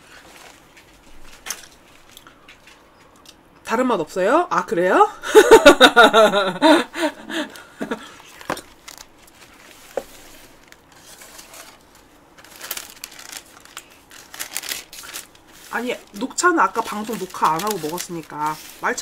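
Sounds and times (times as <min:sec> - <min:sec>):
paper rustling: 0:08.2 - 0:19.0
woman speaking: 0:15.7 - 0:19.0.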